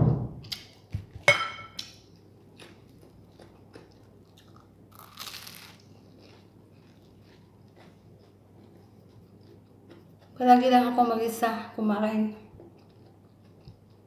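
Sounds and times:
crunchy bite into sandwich: 4.4 - 8.0
chewing clicks: 12.6 - 14.0.

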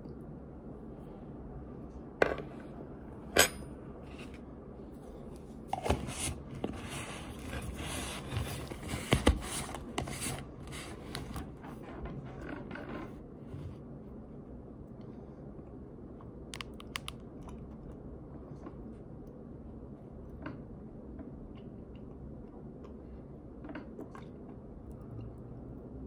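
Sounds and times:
plastic container rubbing and scraping: 5.8 - 11.3.

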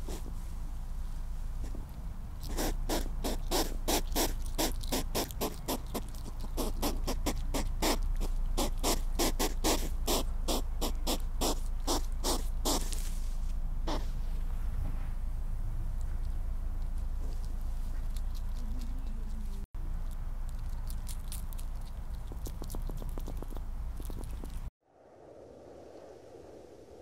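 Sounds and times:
hedgehog huffing: 2.4 - 13.0.

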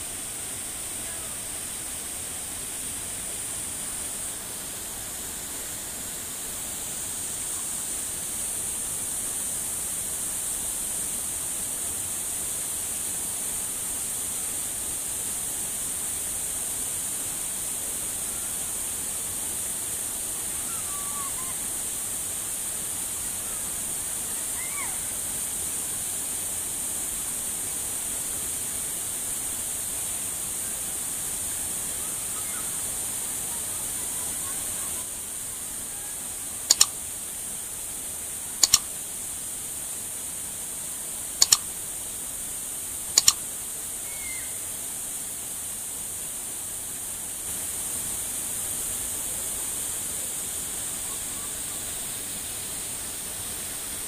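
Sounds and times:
faint short chirps: 38.6 - 38.9, 41.4 - 41.6.

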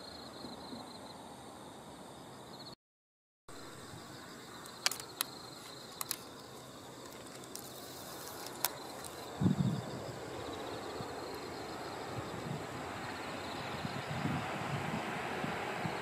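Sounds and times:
insects chirping: 0.0 - 2.8, 3.5 - 16.0
distant train rumble: 3.5 - 16.0
sharp clicks: 4.6 - 9.3.

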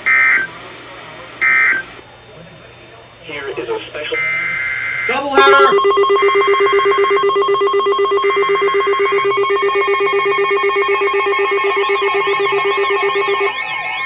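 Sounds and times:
fast-pulsing electronic alarm tone: 4.3 - 14.0
warbling alarm tone: 4.3 - 14.0.

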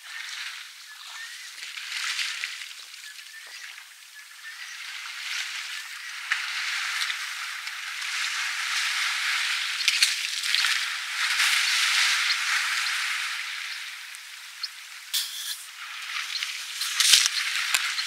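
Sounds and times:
water splashes: 0.0 - 18.0
elephant spraying water: 15.1 - 18.0.

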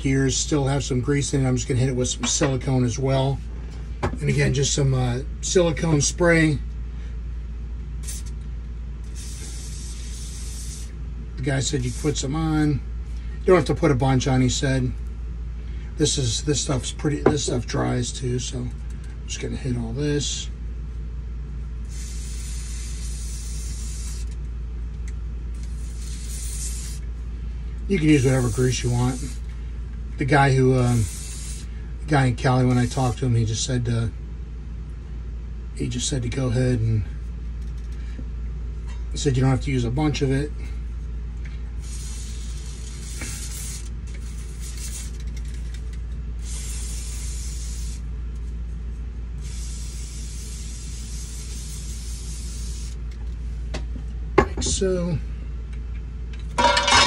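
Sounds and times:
aerosol spray hissing: 9.1 - 10.9, 21.9 - 24.4, 25.6 - 27.0, 28.3 - 29.4, 30.9 - 31.7, 41.8 - 45.2, 46.4 - 48.0, 49.4 - 53.0.

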